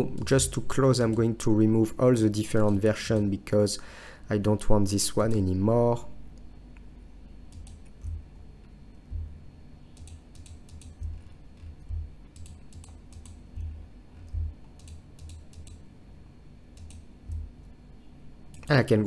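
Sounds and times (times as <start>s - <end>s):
soft low thumps: 8.0s - 8.3s, 9.0s - 9.5s, 11.0s - 12.2s, 13.5s - 14.6s, 17.2s - 17.6s
mouse and keyboard clicks: 10.0s - 15.8s, 16.8s - 17.5s.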